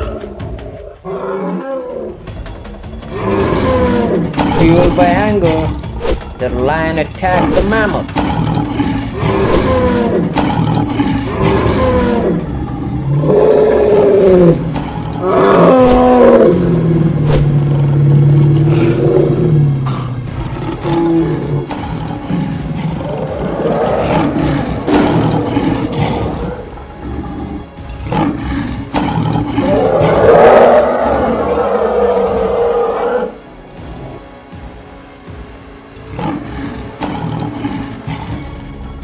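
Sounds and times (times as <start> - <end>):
cartoon lion roars: 7.3 - 17.3, 17.9 - 33.4
low growl: 7.6 - 33.4.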